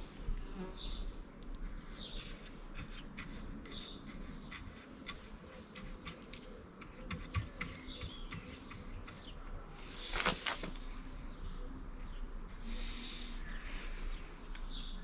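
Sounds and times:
paintbrush scratching on plastic: 1.7 - 9.4.

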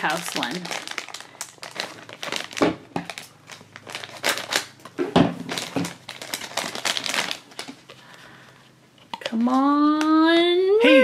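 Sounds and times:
foil bag crinkling: 0.0 - 8.3.

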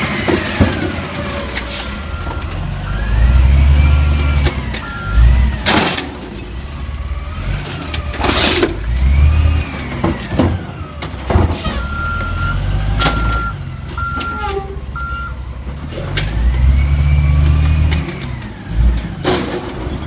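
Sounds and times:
garbage truck engine revving: 0.0 - 20.0
on-off beeping: 11.8 - 15.7
recycling clattering into hopper: 17.4 - 20.0.

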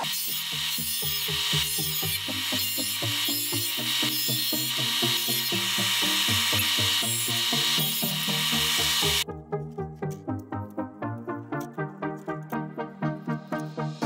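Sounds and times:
disc sander grinding metal: 0.0 - 9.2
background music: 0.8 - 14.0.

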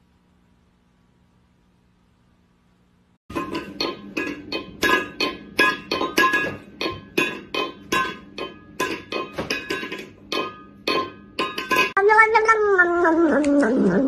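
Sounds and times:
metal bowl clanging on tile: 3.3 - 12.0.

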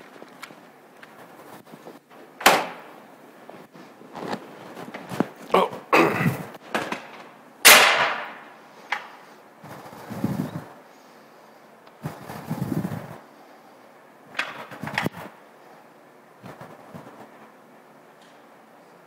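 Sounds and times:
sharp slams: 6.8 - 8.5.

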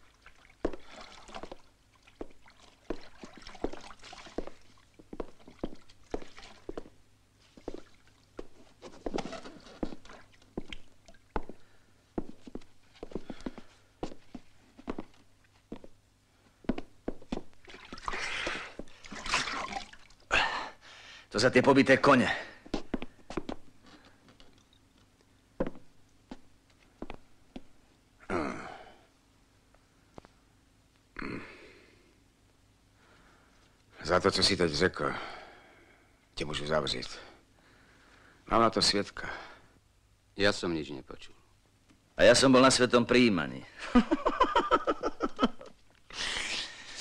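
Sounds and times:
footsteps on wooden floorboards: 0.6 - 1.6, 2.2 - 16.0, 16.6 - 17.6, 22.7 - 27.7.

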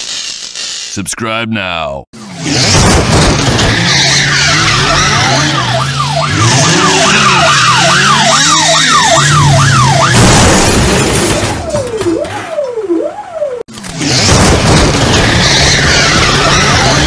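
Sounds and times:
car engine drone: 2.2 - 17.0
siren wail: 3.6 - 13.7, 15.1 - 17.0
police siren yelp: 3.8 - 10.2, 11.2 - 13.7.

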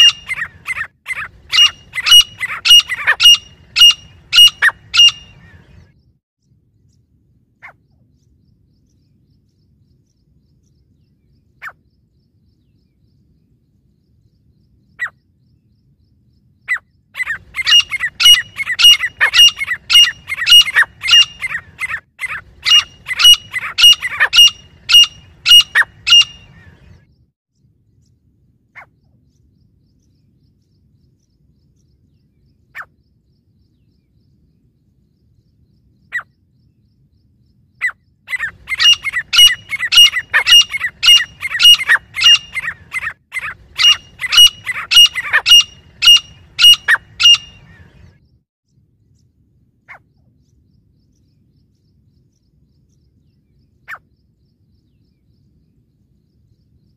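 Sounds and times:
francolins calling shrilly: 0.0 - 5.8, 16.7 - 26.9, 37.8 - 48.0.

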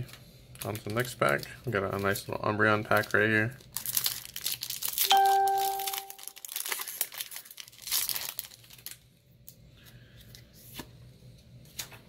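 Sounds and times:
foil wrapper crinkling and tearing: 0.5 - 9.0.

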